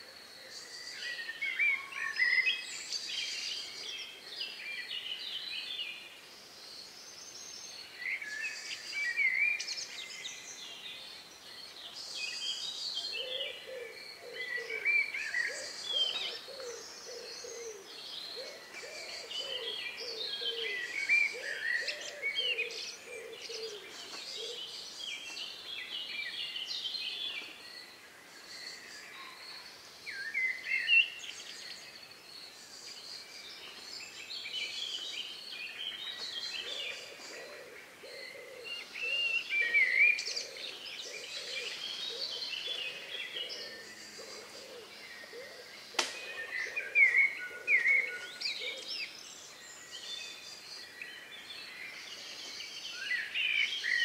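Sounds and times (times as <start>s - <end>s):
songbirds singing: 0.0s - 54.0s.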